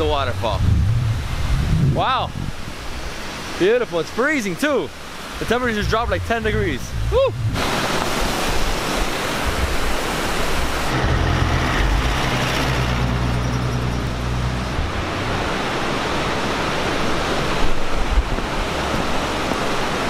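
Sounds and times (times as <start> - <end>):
waterfall and river rushing: 0.0 - 20.0
vehicle engine humming past: 5.4 - 8.8, 10.8 - 17.5.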